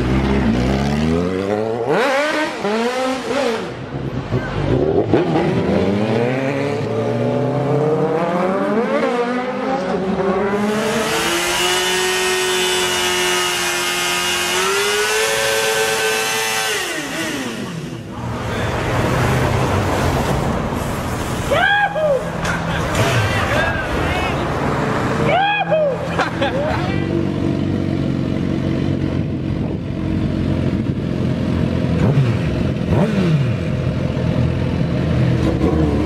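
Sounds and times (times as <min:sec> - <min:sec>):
motorcycle engines revving: 0:00.0 - 0:36.0.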